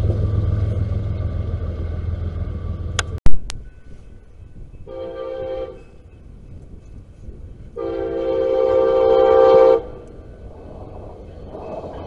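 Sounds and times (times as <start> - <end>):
train horn blasts: 4.8 - 6.0, 7.8 - 10.0.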